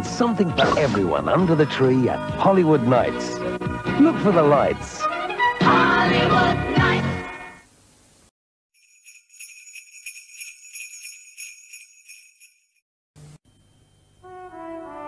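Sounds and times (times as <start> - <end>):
sleigh bells shaking: 8.8 - 12.8
brass music: 14.2 - 15.0.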